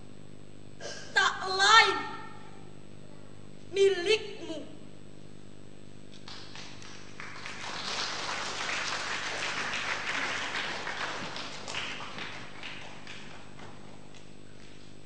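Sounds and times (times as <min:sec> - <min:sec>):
audience applause: 0:06.2 - 0:14.1.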